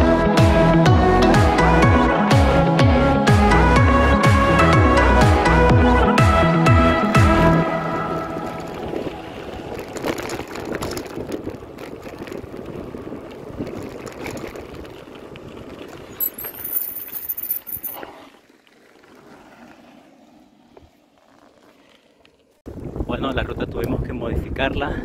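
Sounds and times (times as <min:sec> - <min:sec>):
bike tyres rolling on dirt: 0:07.8 - 0:23.2
wind on microphone: 0:08.6 - 0:16.2, 0:22.7 - 0:25.0.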